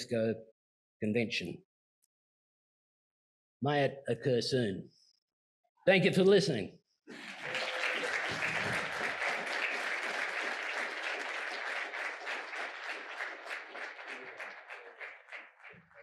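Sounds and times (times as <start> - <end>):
audience applauding: 7.1 - 16.0.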